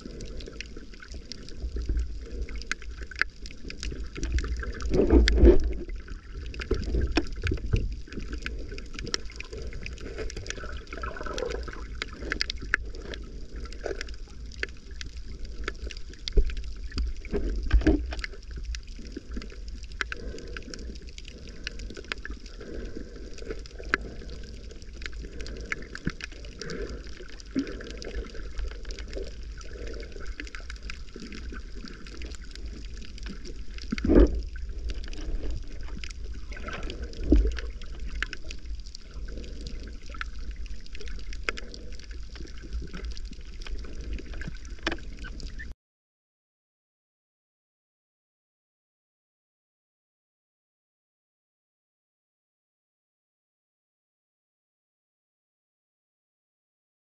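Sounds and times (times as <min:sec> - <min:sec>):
water swishing surges: 0:00.0 - 0:15.1
muffled underwater water sloshing: 0:00.0 - 0:45.7
faint clicks and crackles: 0:00.0 - 0:45.8.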